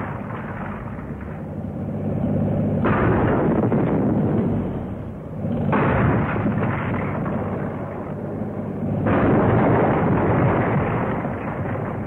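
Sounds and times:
engine running: 0.0 - 12.0
engine crashing into brick wall: 2.8 - 4.4, 5.6 - 8.1, 9.0 - 12.0.

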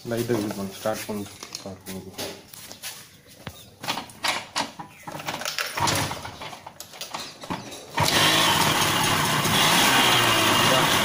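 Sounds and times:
moped knocks and rattles: 3.8 - 11.0
moped engine firing up: 5.8 - 6.5, 7.9 - 11.0.

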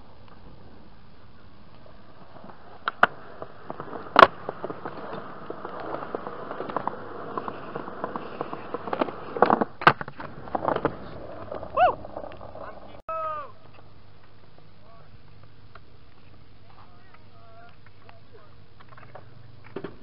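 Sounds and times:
skateboard wheels rolling on concrete: 0.0 - 20.0
skateboard clacking on ground: 1.7 - 13.0.

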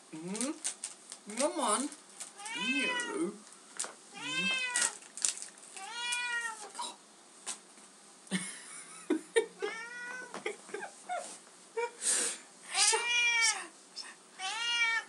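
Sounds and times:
cat meowing: 2.4 - 3.3, 4.1 - 5.0, 5.8 - 7.0, 9.7 - 10.3, 12.8 - 13.7, 14.4 - 15.0.

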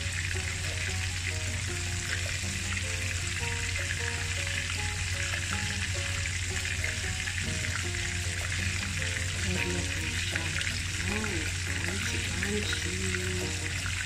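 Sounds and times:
background music: 0.0 - 14.0
chicken frying in hot oil: 0.0 - 14.0.

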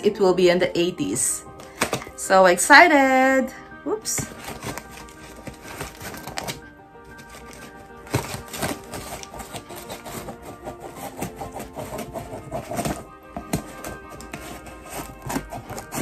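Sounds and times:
background music: 0.0 - 16.0
scissors cutting packing tape: 4.2 - 16.0.

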